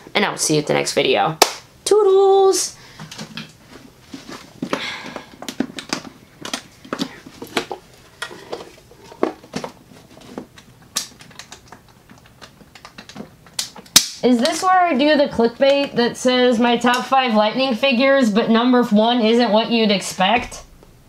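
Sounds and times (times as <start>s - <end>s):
plastic helmet clicks and taps: 10.4s - 14.2s.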